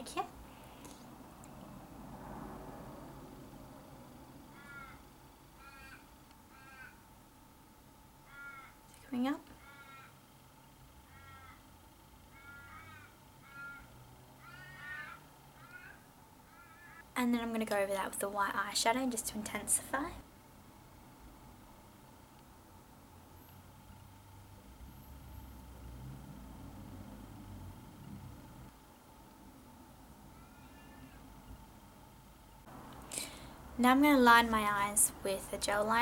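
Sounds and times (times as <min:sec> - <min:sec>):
faint steady hum: 0:00.0 - 0:36.0
low rumble: 0:01.0 - 0:04.5
faint bird calls: 0:05.6 - 0:07.0, 0:08.2 - 0:08.8, 0:09.6 - 0:10.3, 0:11.0 - 0:11.7, 0:12.3 - 0:17.1, 0:30.3 - 0:31.3.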